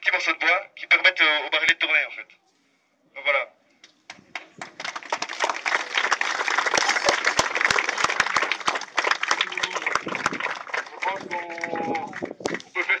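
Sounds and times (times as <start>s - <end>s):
crowd applauding: 4.3s - 13.0s.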